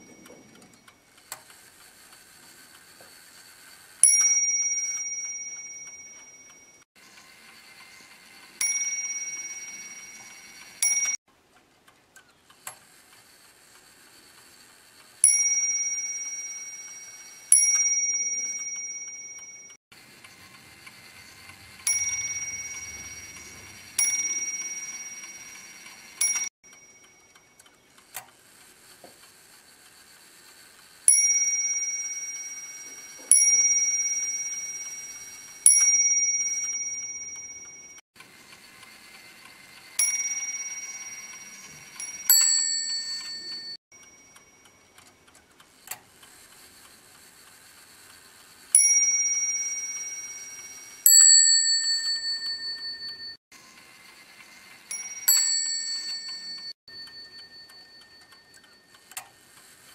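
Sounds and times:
clock bell striking: 0:04.0 - 0:06.8, 0:08.4 - 0:11.2, 0:15.2 - 0:19.8, 0:21.2 - 0:27.4, 0:31.1 - 0:38.0, 0:40.0 - 0:44.6, 0:48.8 - 0:53.4, 0:54.9 - 0:58.9.

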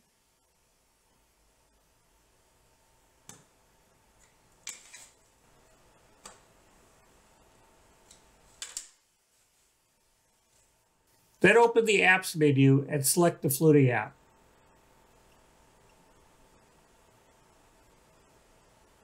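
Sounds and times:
faint clicks and taps: 0:03.2 - 0:03.5, 0:06.2 - 0:06.5.

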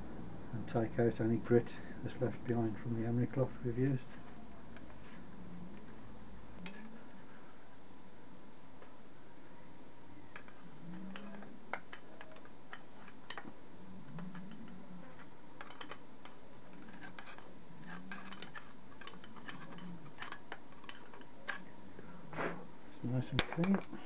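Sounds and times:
screwdriver scraping on metal: 0:16.7 - 0:21.7.

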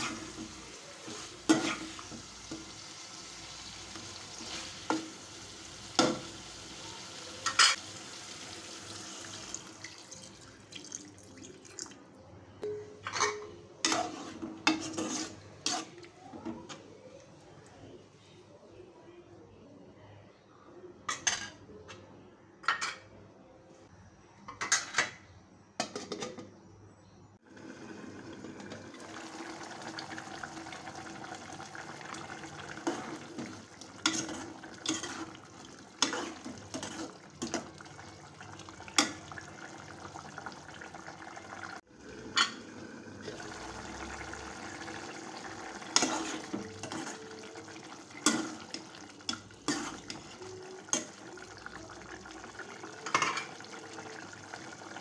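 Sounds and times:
ladle scraping a metal pot: 0:13.2 - 0:16.1, 0:32.8 - 0:37.6, 0:45.9 - 0:47.4, 0:48.2 - 0:51.0.

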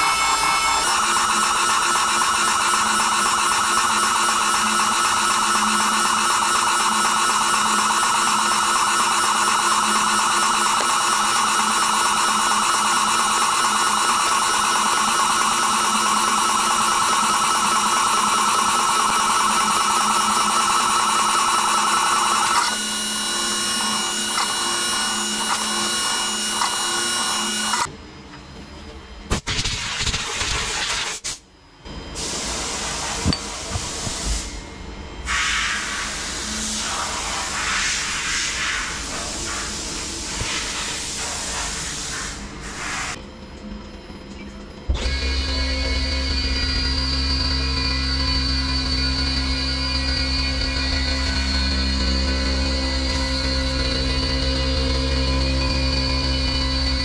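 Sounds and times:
milling machine cutting metal: 0:00.0 - 0:27.9.

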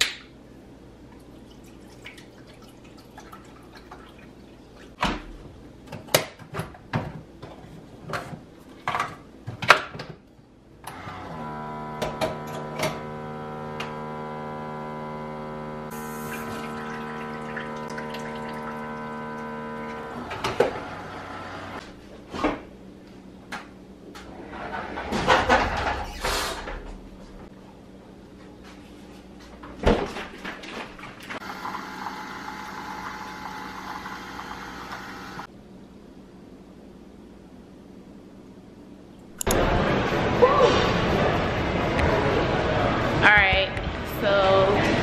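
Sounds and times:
coffee maker pump humming: 0:10.9 - 0:21.8, 0:31.4 - 0:35.5
coffee maker hiss: 0:15.9 - 0:17.8, 0:31.4 - 0:35.5.

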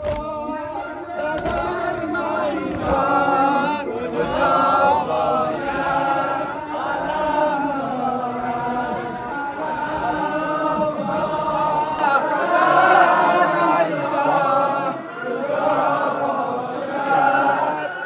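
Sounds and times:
men chanting together: 0:00.0 - 0:18.0.

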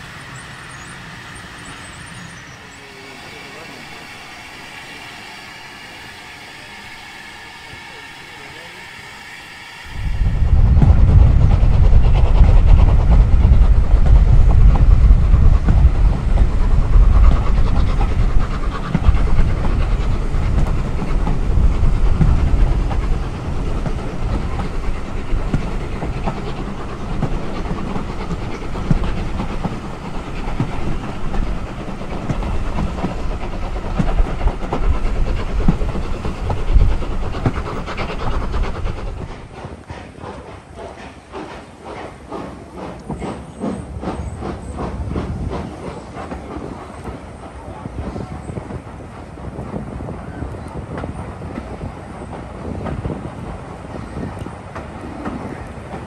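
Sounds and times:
steam engine exhaust: 0:00.0 - 0:56.0
train wheels on rails: 0:00.0 - 0:56.0
deep rumble: 0:09.7 - 0:39.6.

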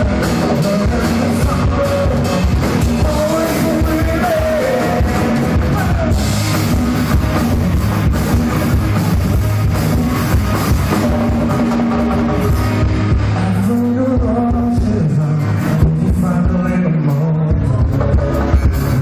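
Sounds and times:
live rock band playing: 0:00.0 - 0:19.0.

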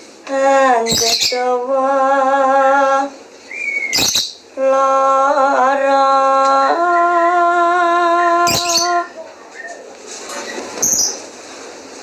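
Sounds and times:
woman singing slow song: 0:00.2 - 0:03.3, 0:04.5 - 0:09.2.

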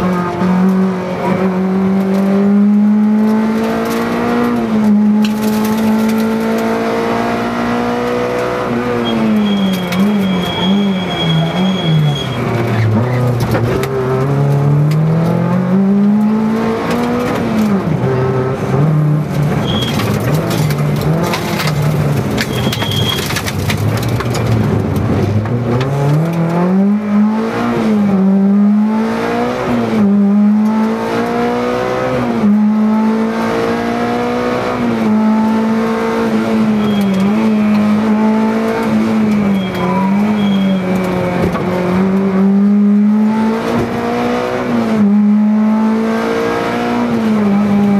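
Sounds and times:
car engine revving: 0:00.0 - 0:47.9.

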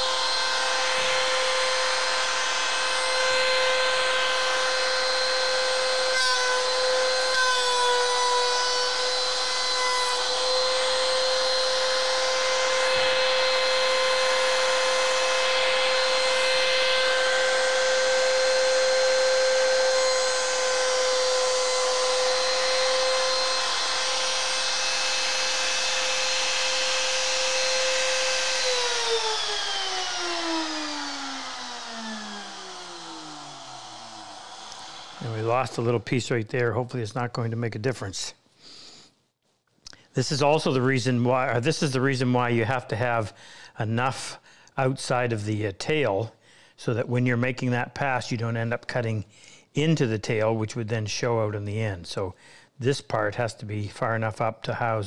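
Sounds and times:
router motor spinning down: 0:00.0 - 0:36.0
router whining: 0:00.0 - 0:36.1.

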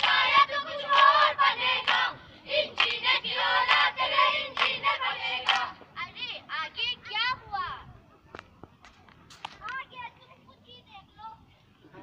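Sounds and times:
children's voices: 0:09.6 - 0:12.0.

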